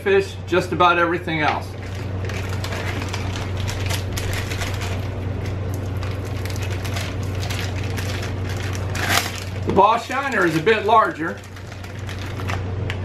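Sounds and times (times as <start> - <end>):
steady low hum: 0.0 - 13.0
crackling and rustling: 1.8 - 13.0.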